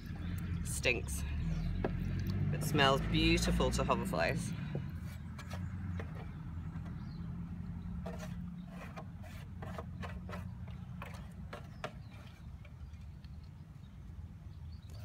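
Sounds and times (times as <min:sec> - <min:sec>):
fingers scraping a plastic tray: 0:08.0 - 0:12.6.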